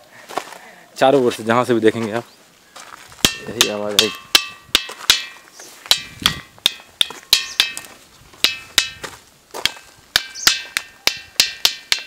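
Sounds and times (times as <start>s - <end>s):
stone striking ringing boulder: 3.2s - 12.0s.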